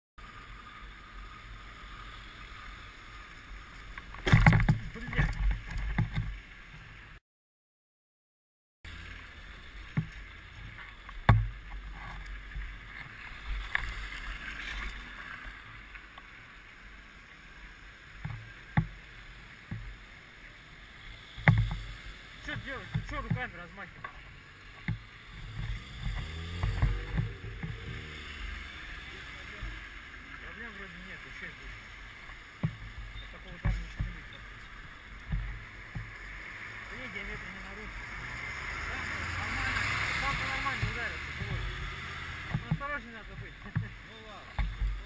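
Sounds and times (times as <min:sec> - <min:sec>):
motorcycle engine: 0:20.7 - 0:45.0
sharp knocks: 0:21.4 - 0:21.8, 0:24.8 - 0:28.1.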